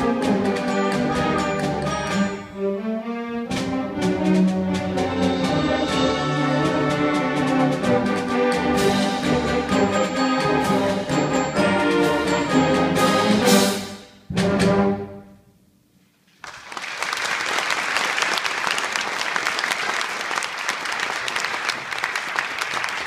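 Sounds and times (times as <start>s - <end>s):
concert band brass chords: 0.0s - 15.4s
audience applause: 16.4s - 23.0s.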